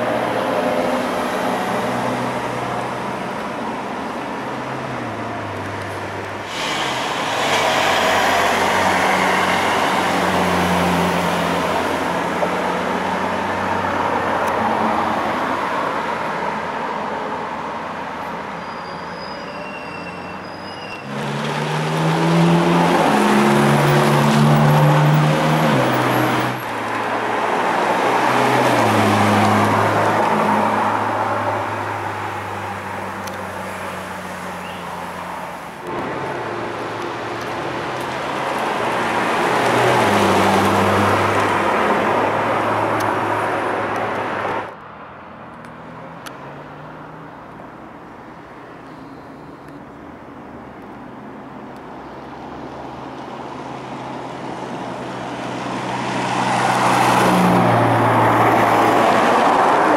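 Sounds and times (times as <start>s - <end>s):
sports car accelerating past: 21.1s - 26.6s.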